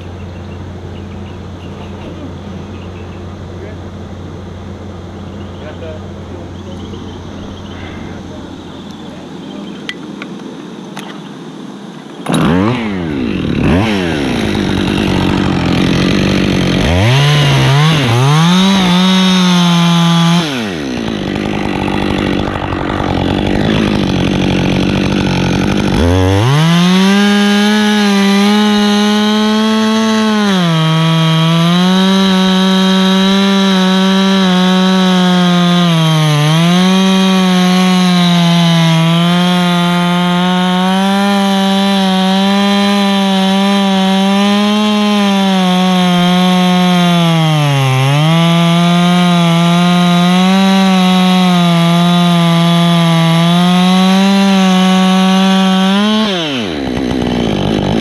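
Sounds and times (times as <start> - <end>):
chainsaw revving: 0.0 - 10.0, 12.2 - 58.0
chainsaw cutting into wood: 12.2 - 58.0.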